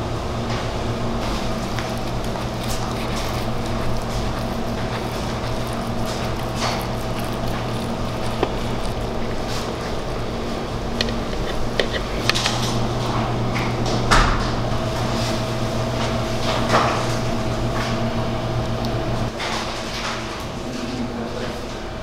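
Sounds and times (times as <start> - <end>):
steady machine hum: 0.0 - 22.0
utensil clicks: 11.0 - 12.7.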